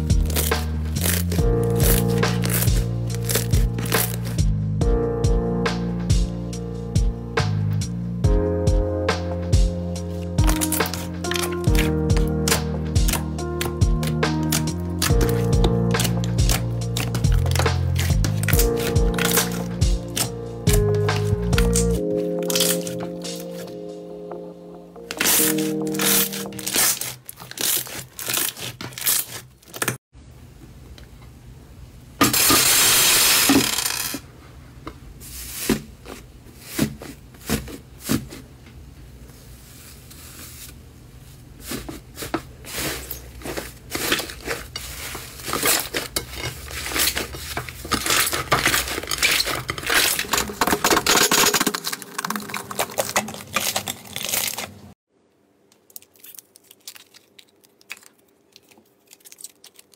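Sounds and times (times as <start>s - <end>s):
slime popping and crackling: 0.0s - 4.4s, 10.4s - 23.7s, 25.1s - 29.4s, 45.4s - 54.9s, 55.8s - 59.9s
slime tearing stretch: 0.0s - 4.4s, 10.5s - 23.7s, 25.1s - 29.5s, 48.0s - 54.8s.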